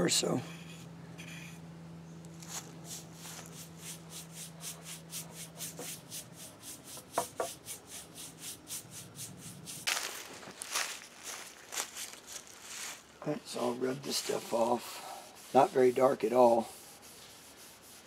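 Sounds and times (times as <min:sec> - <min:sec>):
paintbrush scrubbing wood: 0:02.4 - 0:10.0, 0:13.5 - 0:18.0.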